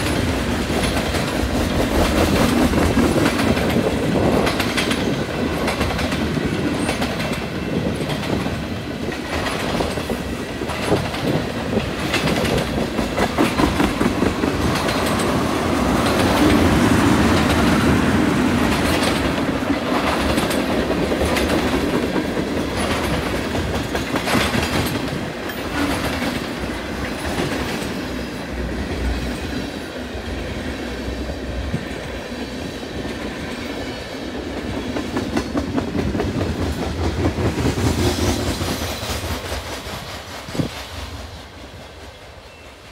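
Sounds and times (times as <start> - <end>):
train rumble: 0.0 - 42.9
train wheels clacking over rail joints: 0.0 - 42.9.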